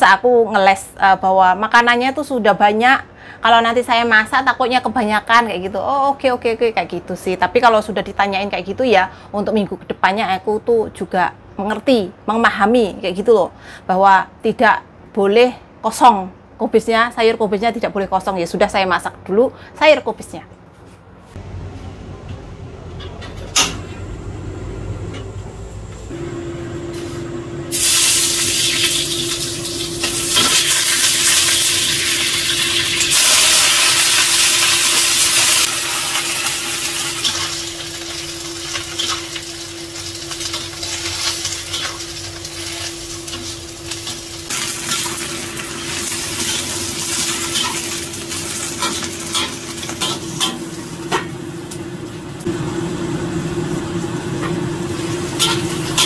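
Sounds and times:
range hood fan hum: 20.3 - 56.0
cabbage sizzling in hot oil: 27.7 - 51.0
metal ladle scraping wok: 55.4 - 56.0.

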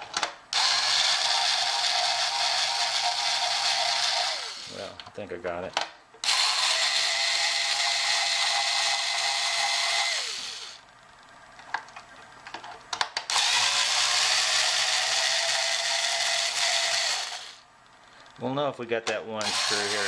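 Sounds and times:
cordless drill running: 0.5 - 4.9, 6.2 - 10.8, 13.3 - 17.6, 19.4 - 20.0.

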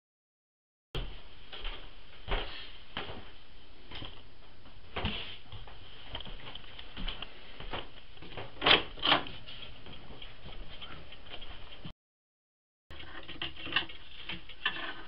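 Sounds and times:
footsteps: 1.0 - 8.6, 9.2 - 11.9.

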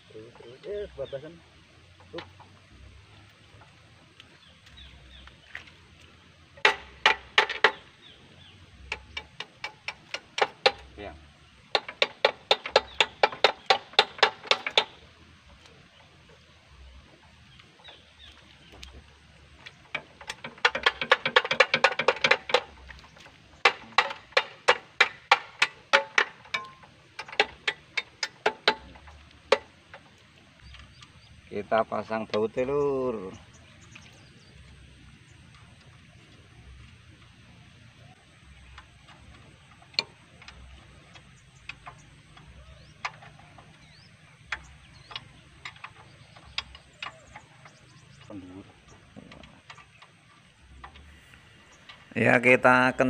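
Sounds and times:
sharp metal knocks: 6.6 - 8.0, 8.8 - 15.1, 19.7 - 31.1
wrench clicking on bolts: 11.7 - 15.0, 19.9 - 22.7, 23.6 - 30.0.

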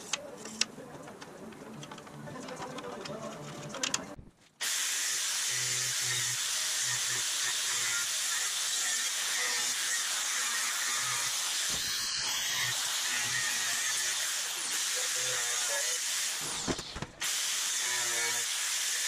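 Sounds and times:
air cutting tool hissing: 4.6 - 8.8, 9.4 - 19.0.

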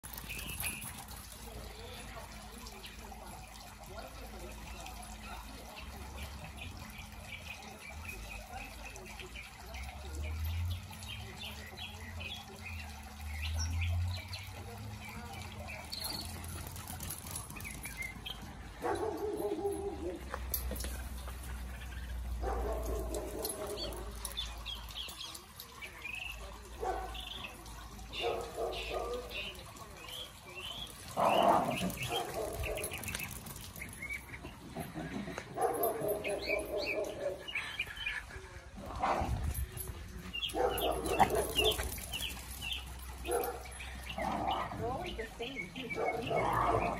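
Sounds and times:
small birds chirping: 0.0 - 46.9
small dogs barking and yelping: 15.9 - 25.6, 26.4 - 29.8, 30.8 - 38.3, 38.9 - 45.0, 45.7 - 46.9.

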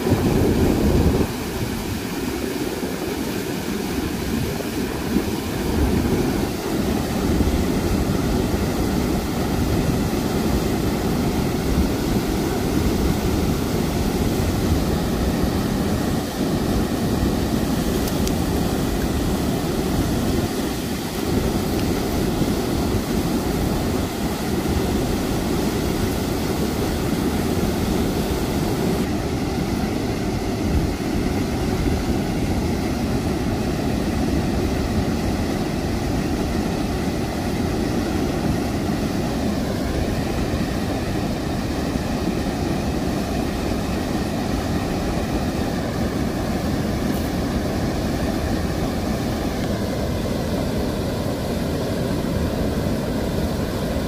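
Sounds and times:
river water rushing: 0.0 - 54.0.

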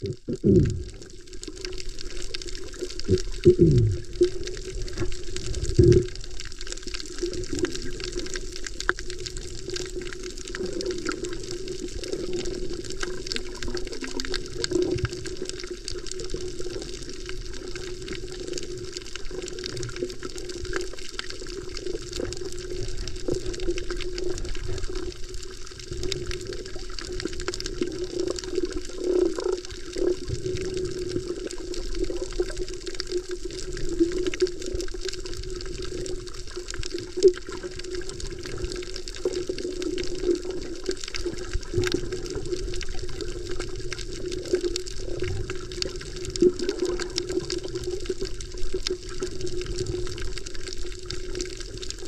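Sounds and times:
faint crackling ticks: 0.0 - 52.0
low hum: 3.4 - 4.0.

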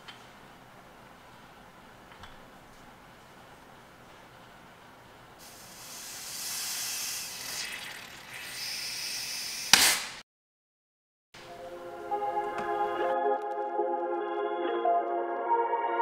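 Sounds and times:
compressed air hissing from blow gun: 5.4 - 10.2
loud blast of air: 5.4 - 10.2.

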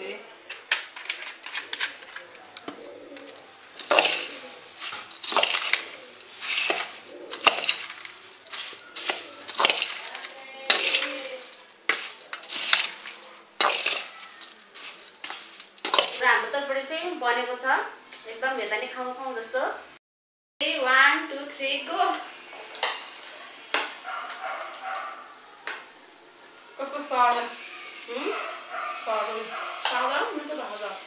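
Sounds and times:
spoon scraping steel bowl: 1.6 - 16.2
puffed rice rustling: 1.6 - 16.4.

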